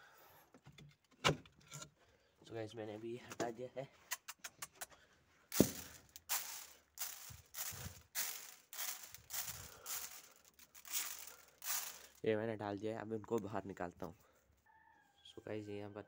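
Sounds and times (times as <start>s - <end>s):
grain clicking on plywood: 5.5s - 12.2s
grain rustling swishes: 5.5s - 12.3s.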